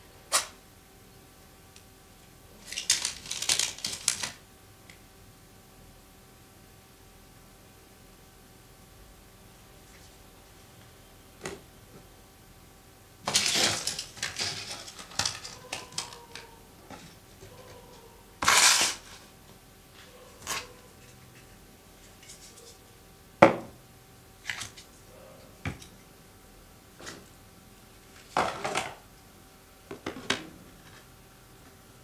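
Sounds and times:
small hard objects rustling: 13.3s - 17.8s, 18.4s - 19.3s.

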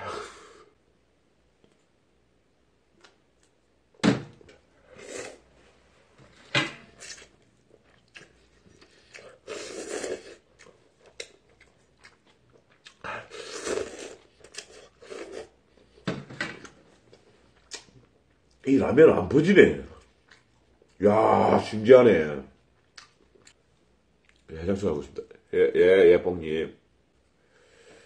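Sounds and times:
man slurping and chewing noodles: 4.8s - 5.5s, 6.9s - 16.0s.

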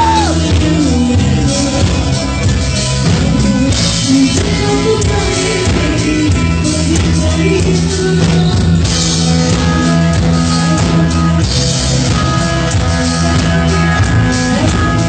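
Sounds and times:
drums: 0.0s - 15.0s
electric guitar: 0.0s - 15.0s
woman singing: 0.0s - 15.0s.

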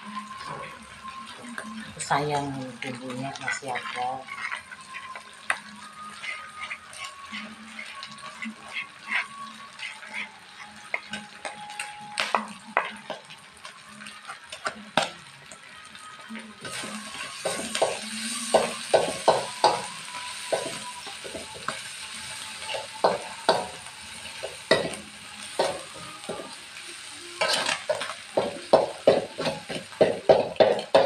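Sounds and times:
food sizzling: 0.0s - 31.0s
metal spatula scraping a wok: 1.5s - 11.3s, 16.6s - 26.6s, 27.3s - 31.0s.

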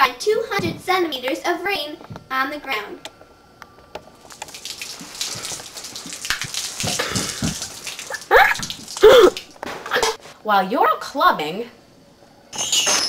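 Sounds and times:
hiss of falling water: 4.2s - 9.5s.

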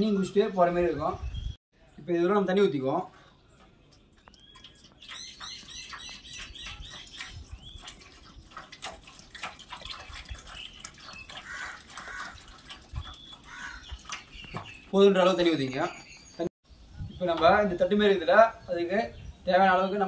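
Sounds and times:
water pouring into tin can: 3.9s - 15.6s.

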